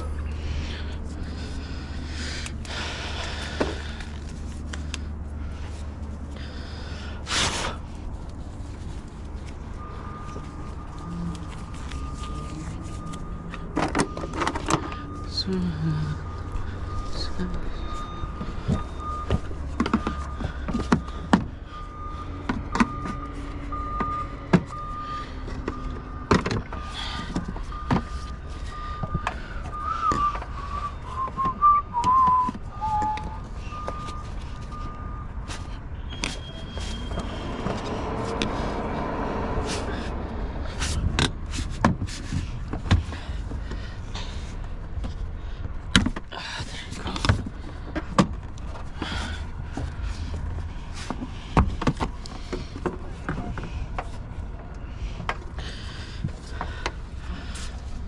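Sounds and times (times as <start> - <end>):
wavering whistle: 29.7 - 34.2.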